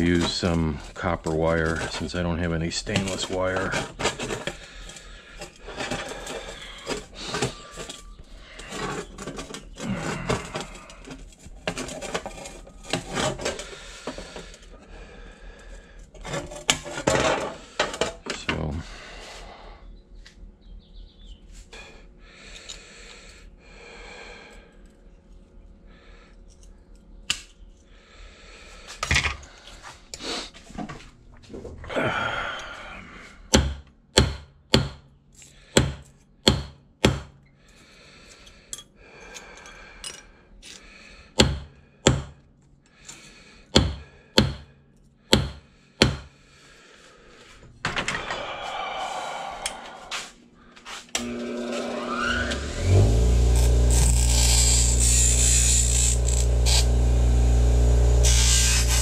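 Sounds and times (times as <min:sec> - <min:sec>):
scratchy scraping: 0:50.9 - 0:59.0.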